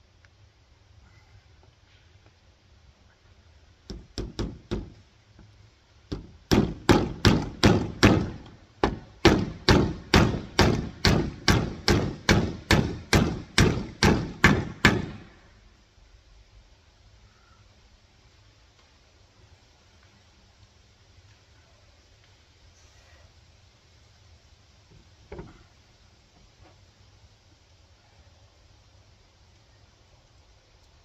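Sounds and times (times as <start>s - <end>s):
hammer hitting nail: 6.1s - 15.4s.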